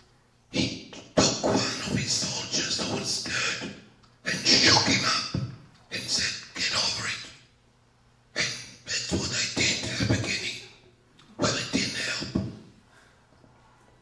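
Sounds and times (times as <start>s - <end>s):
man speaking into a microphone: 0.5s - 7.4s, 8.4s - 10.8s, 11.4s - 12.6s.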